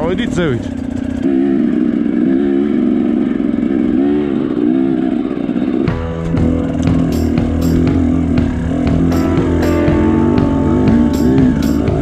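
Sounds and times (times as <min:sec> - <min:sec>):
motorcycle engine revving: 0:00.0 - 0:12.0
music: 0:05.9 - 0:12.0.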